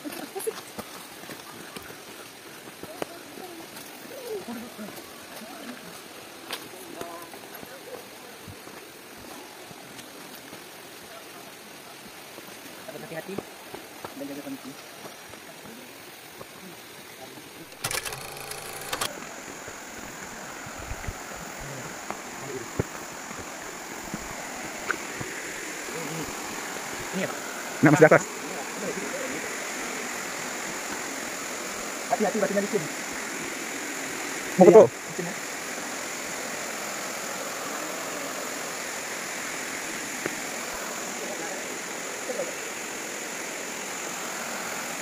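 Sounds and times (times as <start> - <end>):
footsteps on dirt trail: 0.0 - 7.8, 18.5 - 27.4
waterfall and stream rushing: 0.0 - 17.9, 19.0 - 45.0.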